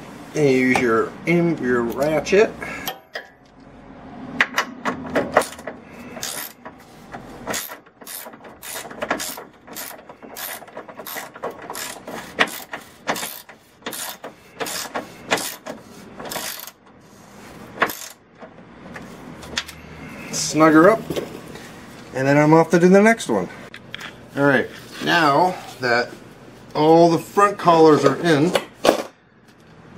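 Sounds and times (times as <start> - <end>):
hand ratchet clicking: 5.3 - 6.8, 7.5 - 16.9, 17.8 - 18.2.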